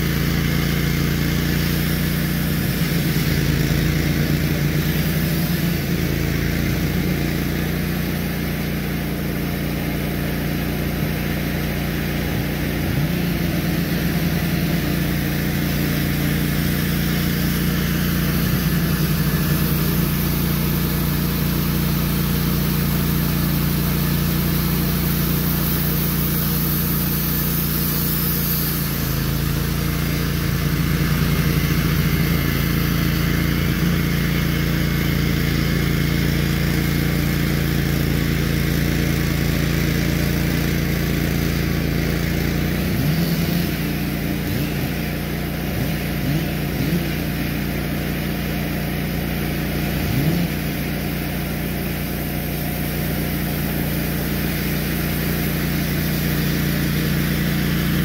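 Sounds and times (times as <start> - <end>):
band sawmill cutting log: 0.0 - 58.0.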